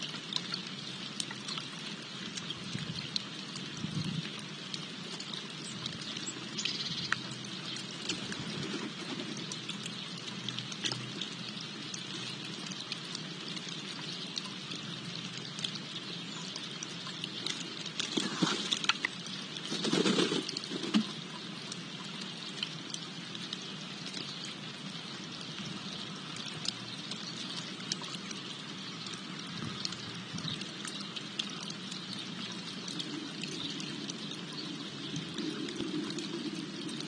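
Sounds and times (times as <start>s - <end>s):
fountain water trickling: 0.0s - 37.0s
light ticks: 5.1s - 8.4s.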